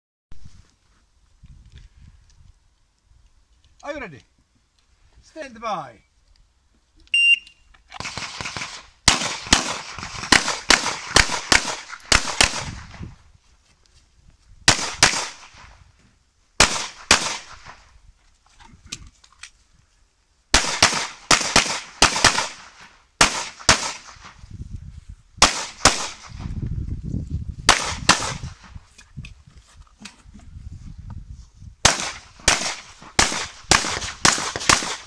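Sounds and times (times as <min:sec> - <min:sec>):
pistol shots: 0:08.0 - 0:13.0, 0:14.7 - 0:15.7, 0:16.6 - 0:17.8, 0:20.5 - 0:24.3, 0:25.4 - 0:26.4, 0:27.7 - 0:28.6, 0:31.8 - 0:35.0.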